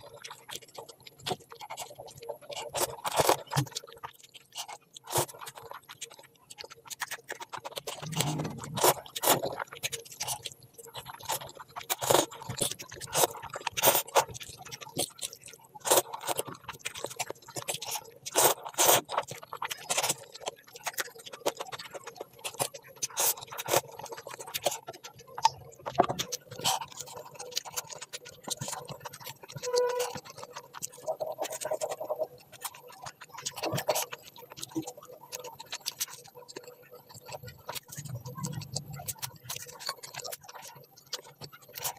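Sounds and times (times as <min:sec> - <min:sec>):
person chewing and smacking: 0:00.0 - 0:41.9.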